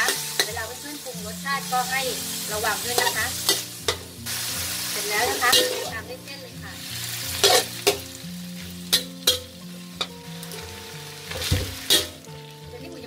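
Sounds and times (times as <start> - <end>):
metal spatula scraping wok: 0.0 - 6.1, 6.9 - 12.3
food sizzling in hot oil: 0.0 - 13.0
spatula clacking against pan: 8.9 - 10.2.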